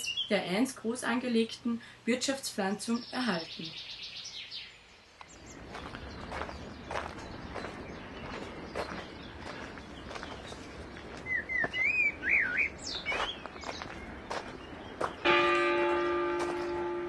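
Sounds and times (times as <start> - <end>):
footsteps on gravel: 5.2 - 11.9, 13.0 - 17.0
songbird whistling: 11.2 - 13.5
church bell ringing: 15.2 - 17.0.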